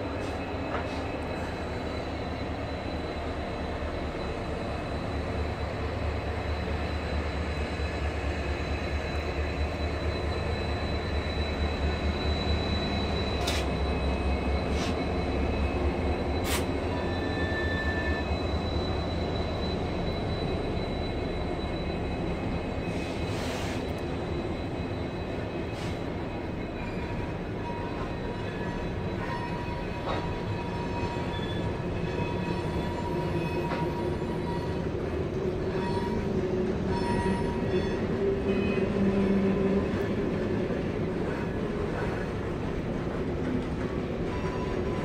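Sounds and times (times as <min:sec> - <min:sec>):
diesel locomotive engine rumble: 0:00.0 - 0:45.0
freight train rolling past: 0:00.0 - 0:45.0
high wheel squeal: 0:00.1 - 0:42.6
sharp clicks from rails: 0:13.4 - 0:13.8.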